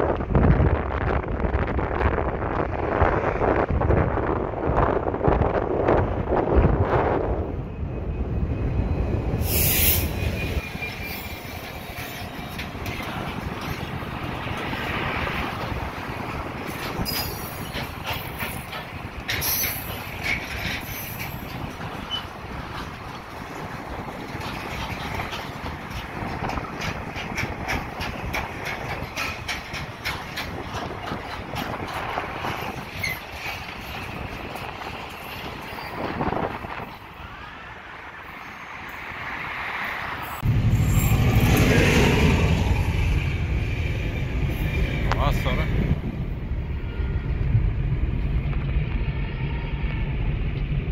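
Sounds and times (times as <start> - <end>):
freight train rolling past: 0.0 - 50.9
wheel squeal: 7.8 - 12.6, 16.9 - 18.7, 32.5 - 34.3, 35.1 - 36.2
wheels clicking over rail joints: 10.7 - 37.2
heavy low rumble: 40.4 - 50.9.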